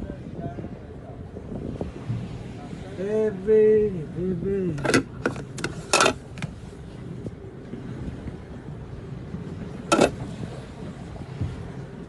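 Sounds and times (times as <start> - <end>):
wind and water rumble: 0.0 - 12.0
boat engine running: 4.0 - 12.0.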